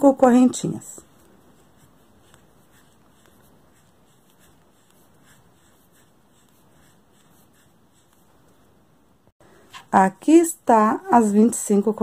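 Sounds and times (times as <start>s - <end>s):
yarn rustling through crochet hook: 0.0s - 8.7s.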